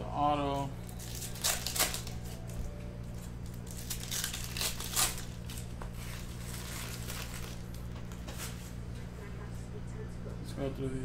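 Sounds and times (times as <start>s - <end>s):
foil wrapper crinkling and tearing: 0.8s - 8.6s.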